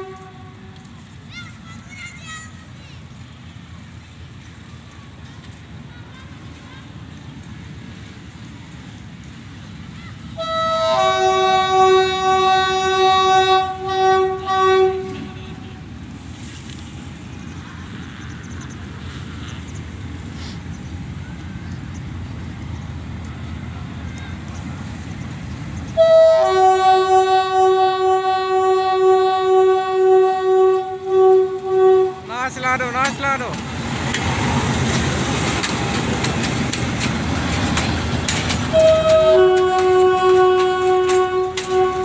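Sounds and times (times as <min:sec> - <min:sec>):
multi-tone locomotive horn: 0:00.0 - 0:00.9, 0:10.3 - 0:16.0, 0:26.0 - 0:32.8, 0:38.7 - 0:42.0.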